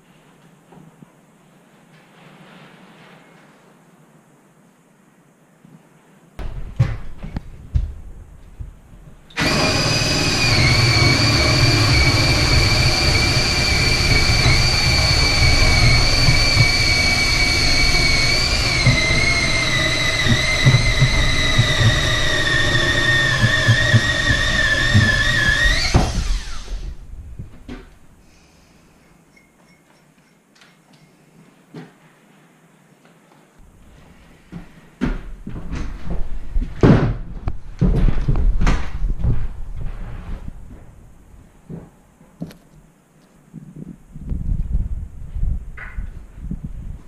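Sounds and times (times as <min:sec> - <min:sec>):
power drill boring into wood: 0:09.3 - 0:27.0.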